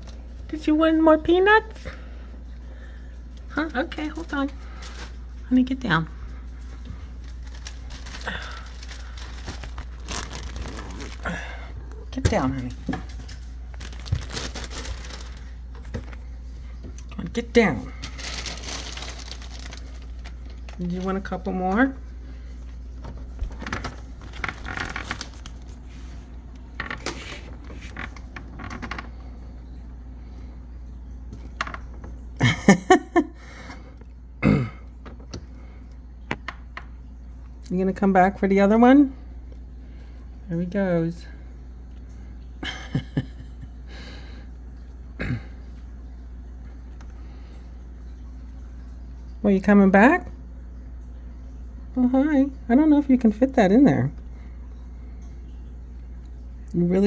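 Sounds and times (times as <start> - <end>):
steady low hum: 0.0 - 57.0
phone handling rustles and crinkles: 7.2 - 11.2, 13.0 - 15.5, 23.6 - 25.8.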